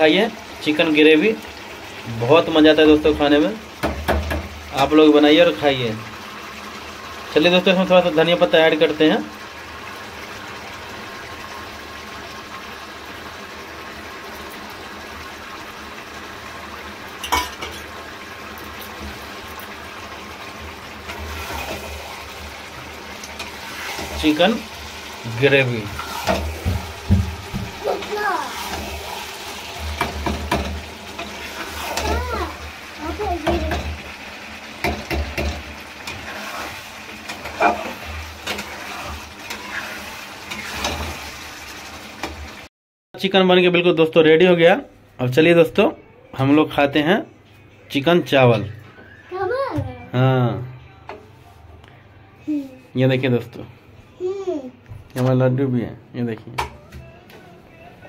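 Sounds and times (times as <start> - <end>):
curry sizzling in a pan: 0.0 - 42.7
metal spatula scraping a pan: 21.0 - 22.3, 23.2 - 25.2, 25.8 - 27.0, 28.0 - 32.2, 34.8 - 41.4.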